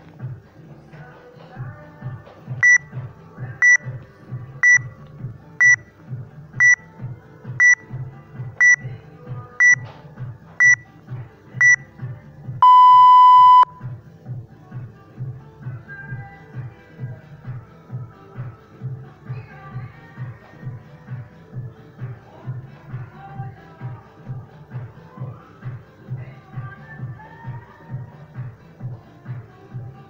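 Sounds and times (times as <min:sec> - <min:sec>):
background music with steady beat: 0:00.0 - 0:30.0
long lower beep: 0:02.6 - 0:02.8, 0:04.6 - 0:04.9, 0:05.6 - 0:05.8, 0:07.6 - 0:07.8, 0:08.6 - 0:08.8, 0:09.6 - 0:09.8, 0:10.6 - 0:10.8, 0:11.6 - 0:11.8, 0:12.6 - 0:13.8
short high beeps: 0:02.6 - 0:02.8, 0:04.6 - 0:04.8, 0:05.6 - 0:05.8, 0:07.6 - 0:07.8, 0:08.6 - 0:08.8, 0:09.6 - 0:09.8, 0:10.6 - 0:10.8, 0:11.6 - 0:11.8, 0:12.6 - 0:13.8.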